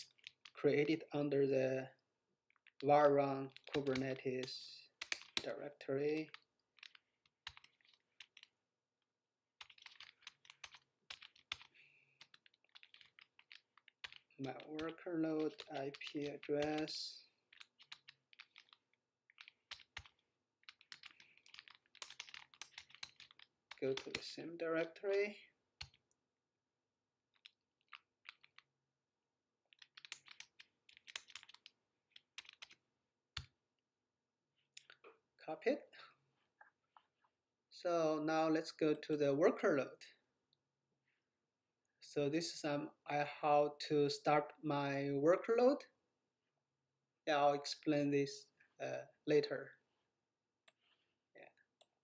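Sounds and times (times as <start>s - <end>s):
keyboard typing: 0.0s - 0.6s, 3.5s - 5.5s, 6.2s - 8.6s, 9.6s - 26.2s, 27.3s - 28.7s, 29.7s - 33.6s.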